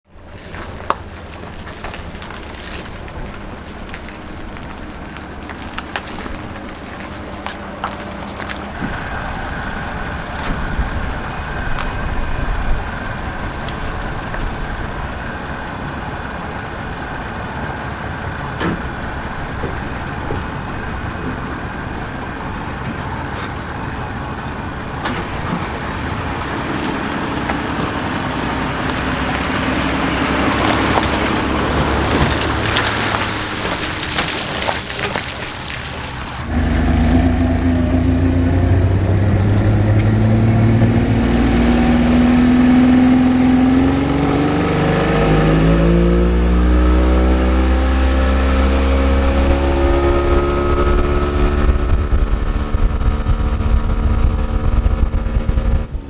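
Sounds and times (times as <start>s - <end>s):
pickup truck engine running: 0.1s - 44.4s
lower steady engine note: 0.1s - 56.0s.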